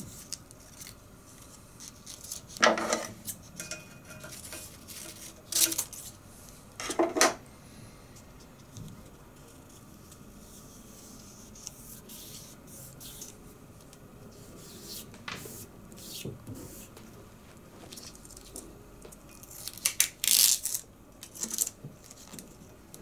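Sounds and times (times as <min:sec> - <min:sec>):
tape peeling off: 0:19.4 - 0:22.4.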